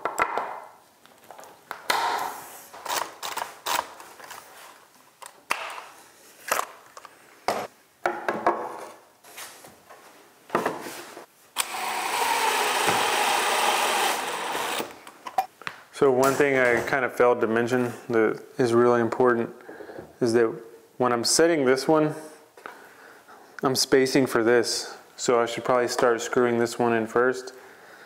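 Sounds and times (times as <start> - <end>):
cordless drill driving screw: 11.6 - 15.0.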